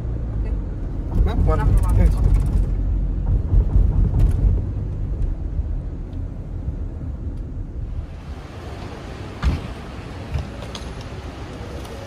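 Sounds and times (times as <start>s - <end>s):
car cabin road and engine noise: 0.0s - 12.0s.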